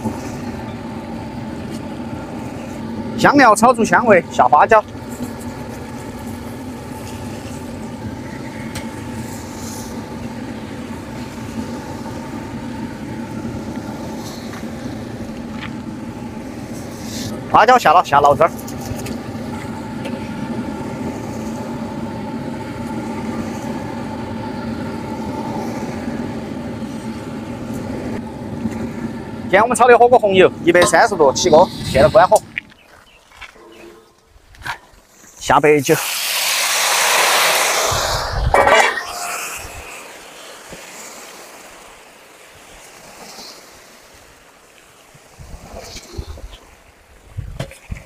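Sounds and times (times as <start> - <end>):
burner drone: 0.0 - 32.8, 33.4 - 42.4
oil sizzling in a wok: 36.0 - 38.2.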